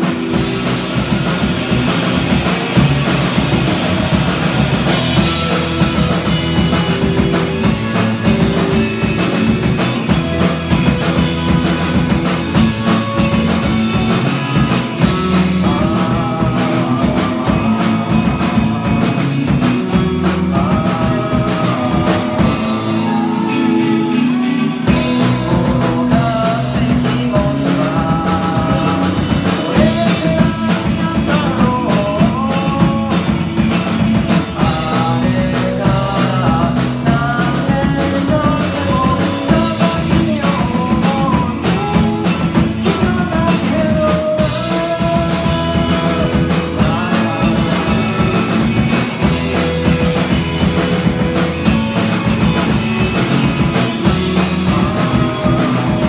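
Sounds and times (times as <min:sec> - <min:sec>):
gliding guitar melody: 0:00.0 - 0:26.5
live rock band playing: 0:00.0 - 0:56.0.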